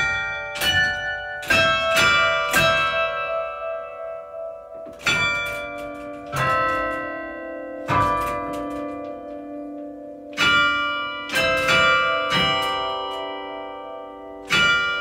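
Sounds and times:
carillon bells melody: 0:00.0 - 0:15.0.

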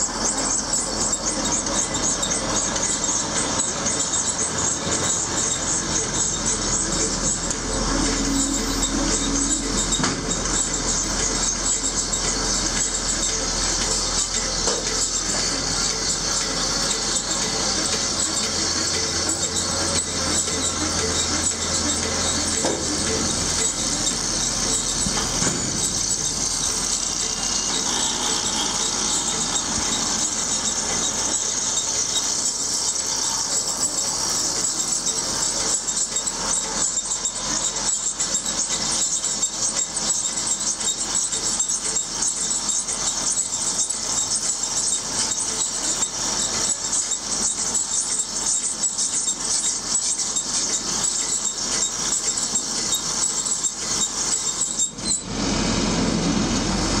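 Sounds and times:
baler high-pitched squealing hiss: 0:00.0 - 0:57.0.

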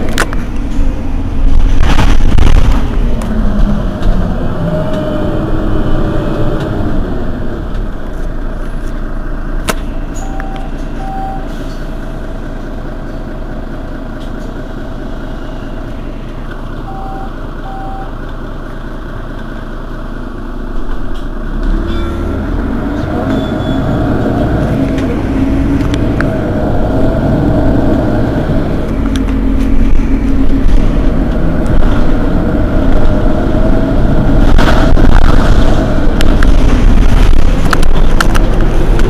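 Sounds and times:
bus diesel engine idling: 0:00.0 - 0:01.8, 0:02.6 - 0:39.0
short beeps: 0:10.1 - 0:11.5, 0:16.8 - 0:18.1.

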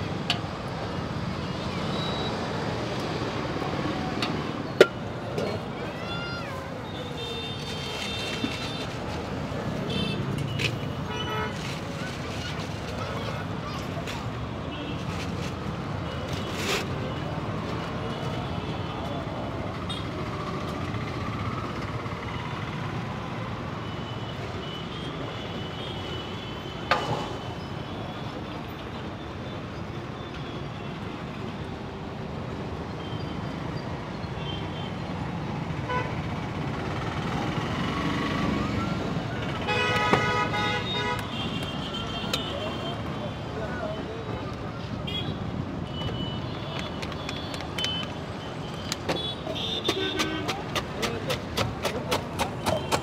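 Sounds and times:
steady traffic: 0:00.0 - 0:53.0
crowd chatter: 0:49.4 - 0:53.0.

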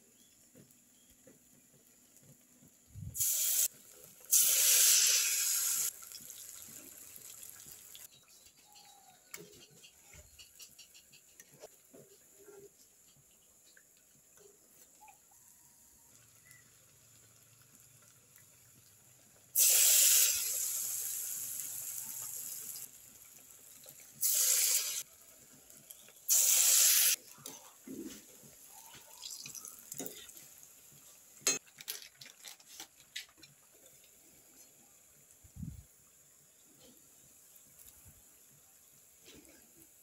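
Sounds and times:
food sizzling in hot oil: 0:03.0 - 0:08.2, 0:15.4 - 0:31.6, 0:33.1 - 0:40.0.

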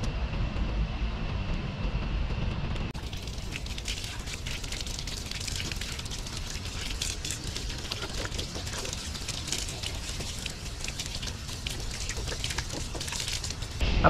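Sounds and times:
water pouring from tap: 0:03.0 - 0:13.8
water splashing and dripping: 0:03.0 - 0:13.8.

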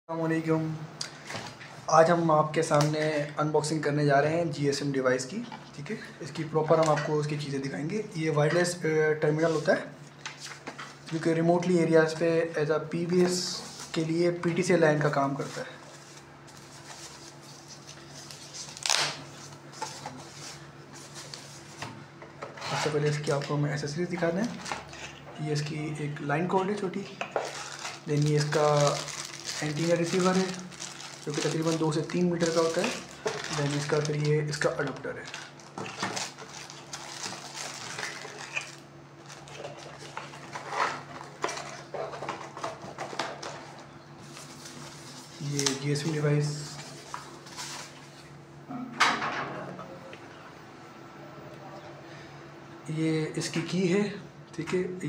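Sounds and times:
low steady hum: 0:00.1 - 0:55.0
paper rustling: 0:15.1 - 0:25.0, 0:27.4 - 0:48.3.

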